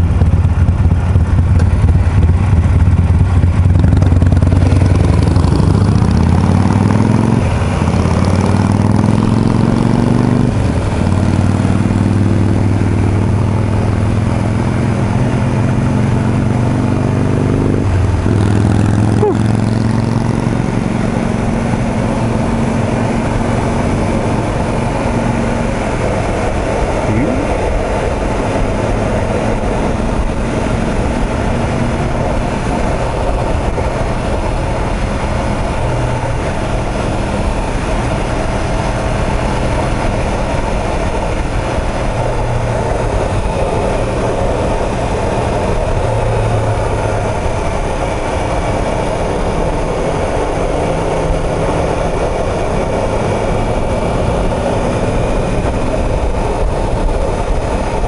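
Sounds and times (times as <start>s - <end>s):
motorcycle engines idling: 0.0s - 6.3s
motorcycle accelerating through gears: 0.0s - 58.0s.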